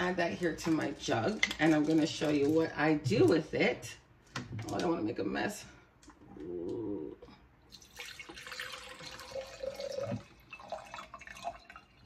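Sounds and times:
water pouring into a pitcher: 0:07.7 - 0:12.0.

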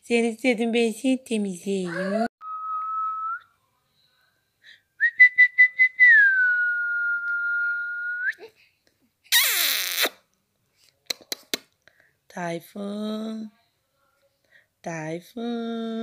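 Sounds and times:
person whistling: 0:02.4 - 0:03.5, 0:05.0 - 0:08.4.

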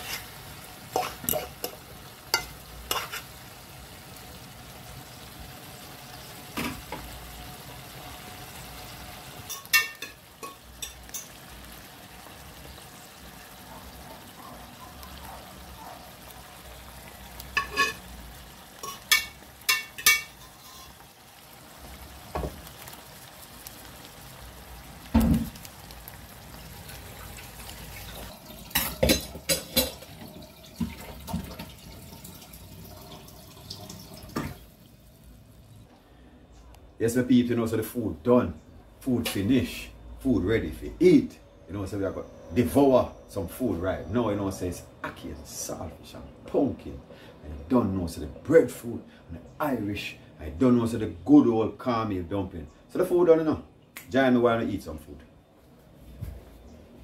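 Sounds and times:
stew sizzling in a pan: 0:00.0 - 0:36.0
spoon clinking against pan: 0:09.5 - 0:11.4, 0:17.6 - 0:18.0, 0:18.8 - 0:21.0.

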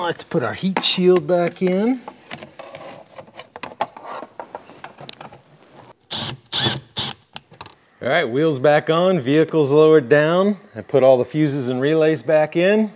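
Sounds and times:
cordless drill bursts: 0:06.1 - 0:07.2.

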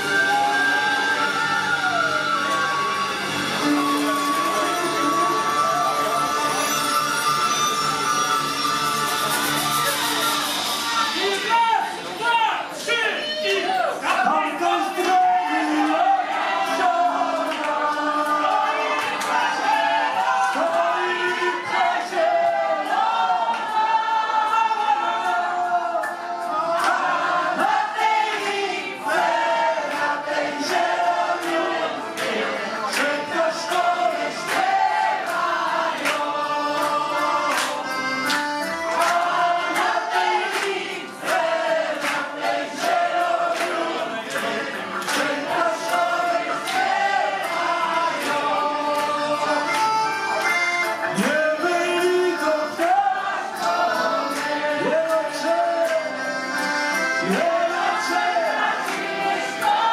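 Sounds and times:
accordion: 0:00.0 - 0:11.4, 0:15.6 - 0:59.9
voices singing together: 0:14.6 - 0:59.9.

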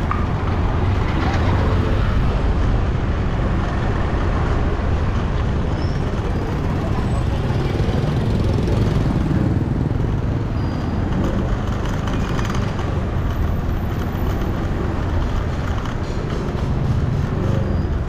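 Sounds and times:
busy street traffic: 0:00.0 - 0:18.0.

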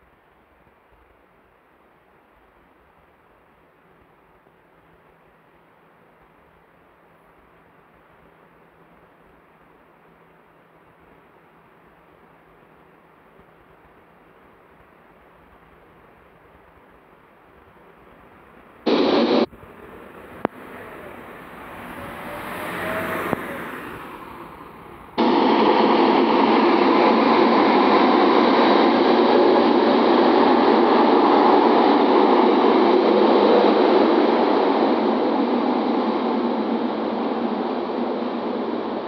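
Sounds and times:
bus pulling away: 0:18.9 - 0:26.9
loud steady rushing noise: 0:18.9 - 0:39.0.

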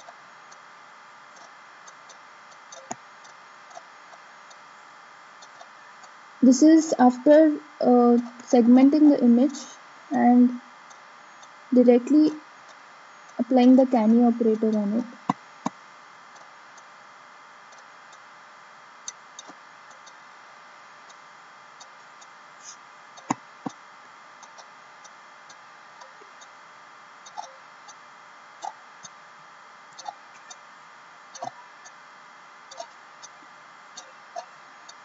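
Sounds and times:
steady hiss: 0:00.0 - 0:35.0
computer mouse clicking: 0:01.4 - 0:03.8, 0:27.3 - 0:27.5.

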